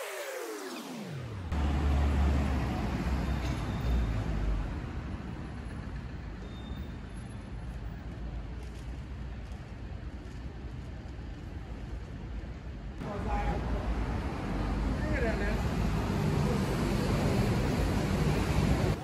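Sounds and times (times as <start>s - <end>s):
passing cars: 0.0s - 6.4s, 13.0s - 19.0s.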